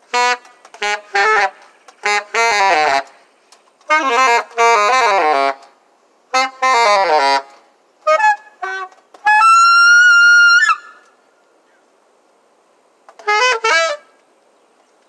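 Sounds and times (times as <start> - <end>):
solo alto saxophone: 0.1 - 3.2, 3.8 - 11.1, 13.1 - 14.2.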